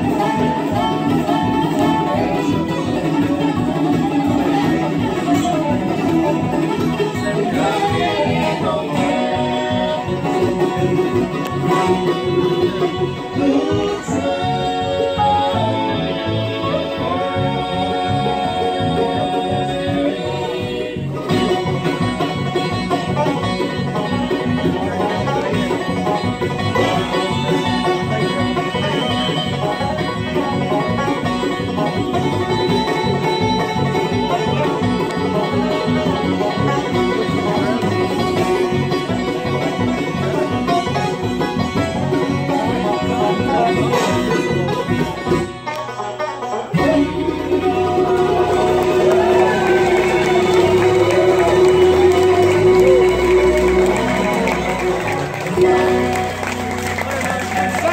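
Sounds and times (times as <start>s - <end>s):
acoustic guitar: 0.0s - 57.9s
banjo: 0.0s - 57.9s
mandolin: 0.0s - 57.9s
resonator guitar: 0.0s - 57.9s.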